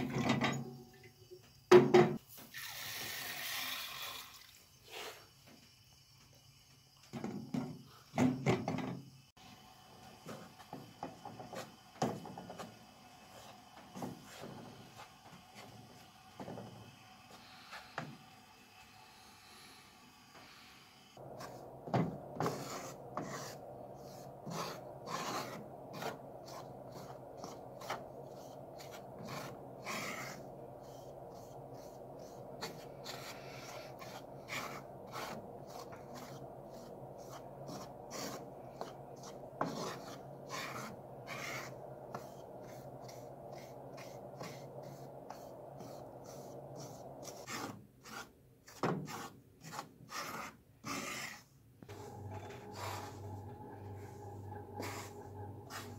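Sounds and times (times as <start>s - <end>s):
wooden spoon scraping a pan: 21.4s - 55.9s
low hum: 51.9s - 55.9s.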